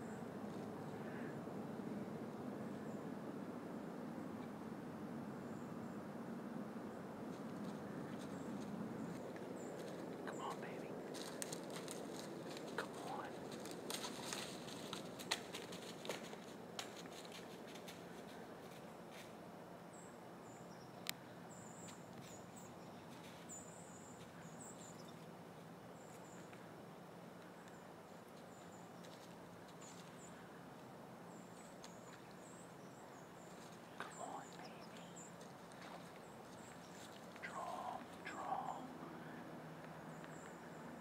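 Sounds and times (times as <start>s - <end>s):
faint steady hum: 0.0s - 41.0s
rustling in dry leaves: 7.4s - 19.4s, 31.4s - 38.6s.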